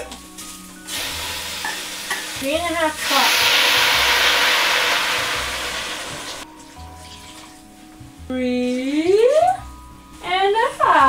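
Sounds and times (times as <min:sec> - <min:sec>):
meat sizzling in a hot pot: 0:00.0 - 0:07.8.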